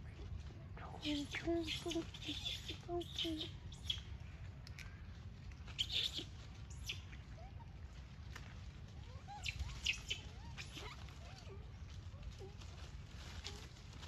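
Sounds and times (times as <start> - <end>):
steady low hum: 0.0 - 14.0
animal chirps and squeaks: 1.0 - 4.1, 5.7 - 7.8, 9.1 - 11.6.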